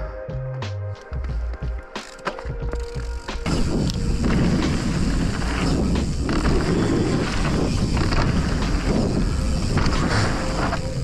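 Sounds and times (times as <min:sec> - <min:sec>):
bike tyres rolling on dirt: 0:01.3 - 0:11.0
wind buffeting microphone: 0:03.5 - 0:11.0.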